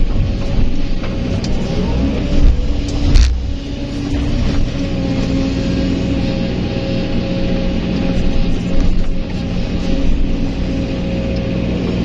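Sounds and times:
excavator diesel engine running: 0.0s - 12.0s
dirt and rocks dumping: 2.3s - 4.8s.

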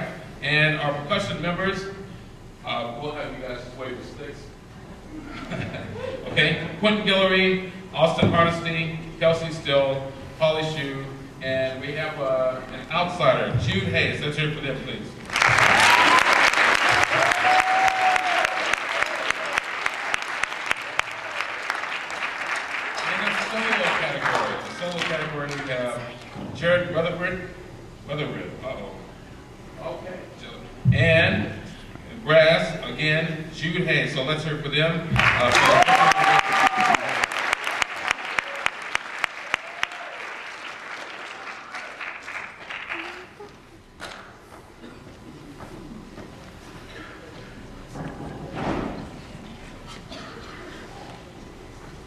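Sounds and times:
audience applauding: 15.3s - 25.8s, 35.2s - 44.2s.

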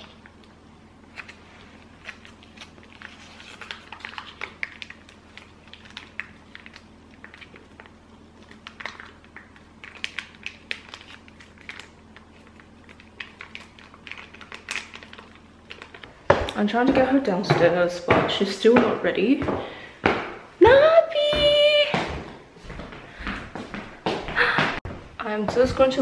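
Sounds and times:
pouch crinkling: 1.1s - 16.2s.

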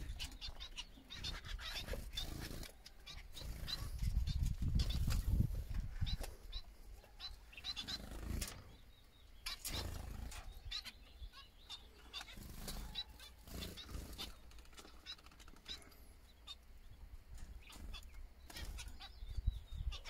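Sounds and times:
finches chirping: 0.0s - 20.0s.

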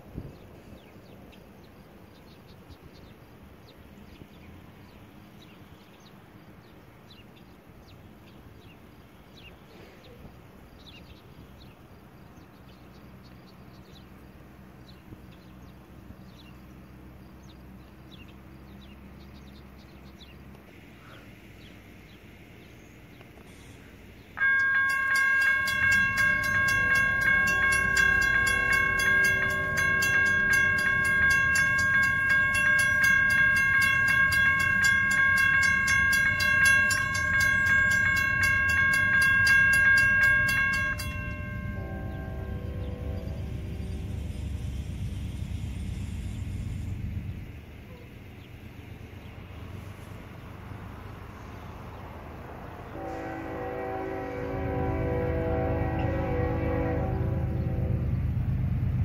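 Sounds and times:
distant locomotive rumble: 0.0s - 59.0s
crossing warning bell ringing: 23.8s - 58.5s.

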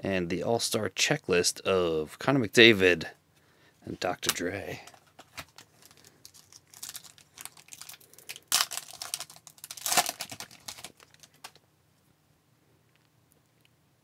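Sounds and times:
cards rustling: 4.2s - 11.6s
foil wrapper crinkling: 4.9s - 11.6s
foil wrapper ripping: 5.5s - 11.6s.

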